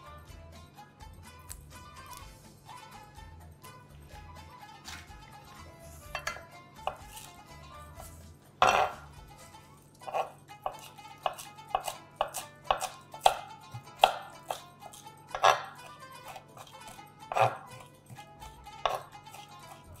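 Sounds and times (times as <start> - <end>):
background music: 0.0 - 20.0
knife chopping on wooden board: 6.1 - 7.4, 8.6 - 9.1, 10.0 - 20.0.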